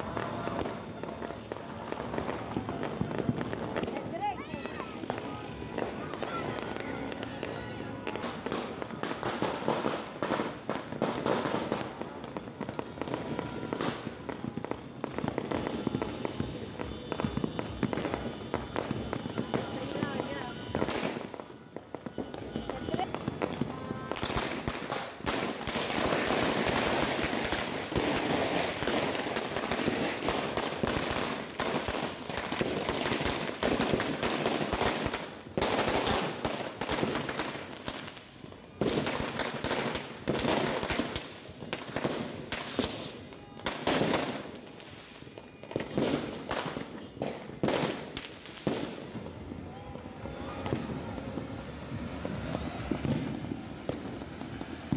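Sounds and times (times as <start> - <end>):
firecrackers crackling: 0.0 - 54.9.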